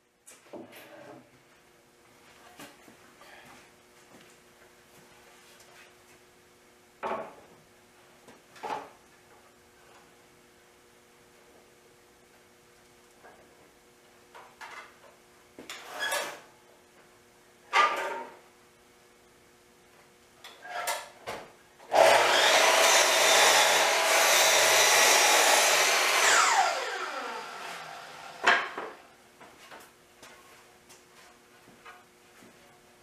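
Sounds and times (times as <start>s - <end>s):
woodworking machine running: 21.9s - 29.0s.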